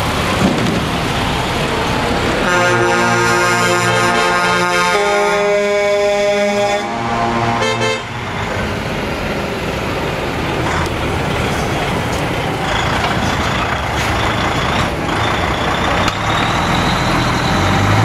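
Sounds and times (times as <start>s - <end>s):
multi-note horn: 2.4s - 8.2s
truck diesel engine pulling away: 7.0s - 18.0s.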